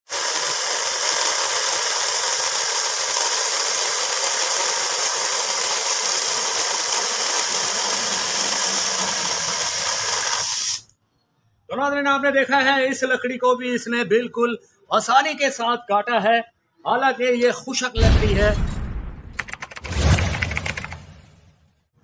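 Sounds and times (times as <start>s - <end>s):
mini chainsaw cutting branch: 0.1s - 10.8s.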